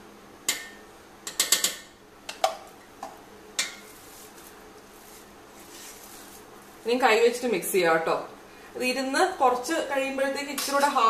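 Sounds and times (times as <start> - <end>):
spoon scraping dough: 3.7 - 6.8.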